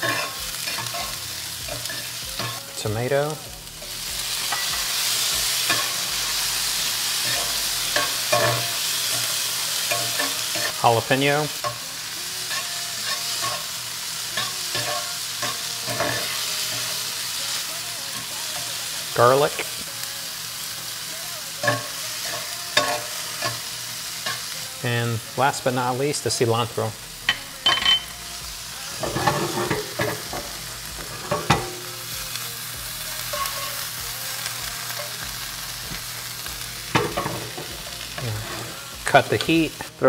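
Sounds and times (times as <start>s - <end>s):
metal spatula scraping a pan: 0.0s - 2.6s, 6.9s - 11.8s, 14.4s - 17.0s, 21.6s - 24.6s, 28.9s - 32.0s, 33.2s - 33.9s, 36.9s - 39.5s
vegetables sizzling in butter: 0.0s - 40.0s.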